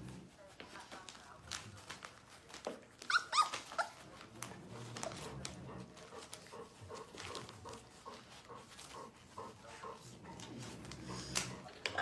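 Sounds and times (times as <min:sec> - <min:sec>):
newspaper crinkling: 0:00.4 - 0:09.0
puppy whining and yelping: 0:03.0 - 0:04.1.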